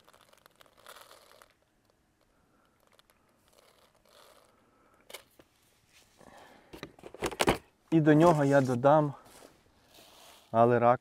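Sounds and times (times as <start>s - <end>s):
plastic bag crinkling: 0.0s - 4.6s.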